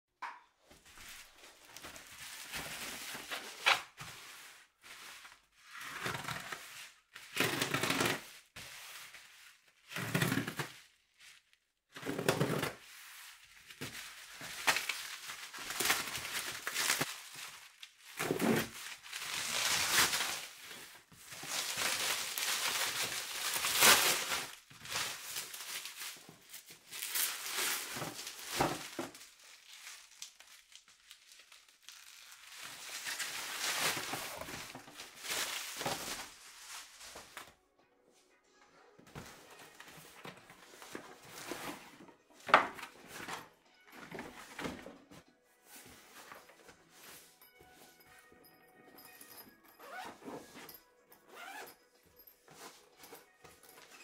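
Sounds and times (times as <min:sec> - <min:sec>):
plastic wrapping crinkling: 0:00.6 - 0:37.5.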